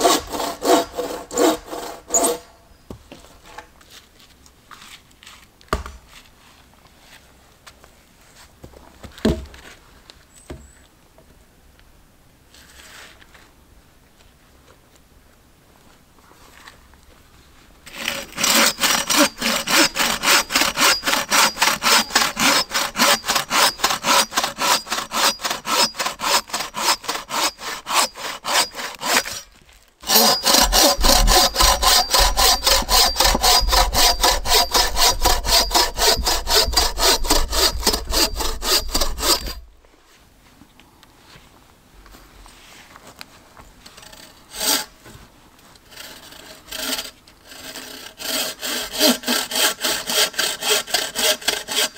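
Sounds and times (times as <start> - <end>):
bow saw cutting log: 0.0 - 2.5, 17.9 - 39.7, 44.0 - 45.0, 45.8 - 51.9.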